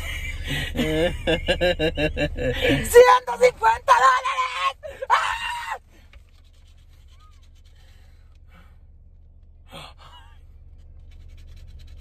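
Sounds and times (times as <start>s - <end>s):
low steady hum: 0.0s - 12.0s
scratching lottery ticket: 6.2s - 8.3s, 10.8s - 12.0s.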